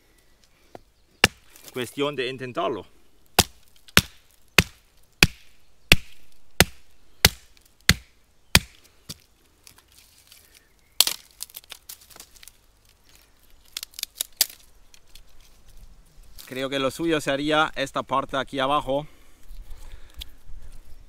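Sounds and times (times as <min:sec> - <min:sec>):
stone striking hollow branch: 0:01.2 - 0:01.7, 0:03.4 - 0:09.2
wood snapping and splintering: 0:01.2 - 0:01.8, 0:03.4 - 0:15.5
wood cracking: 0:01.2 - 0:01.9, 0:03.2 - 0:16.6.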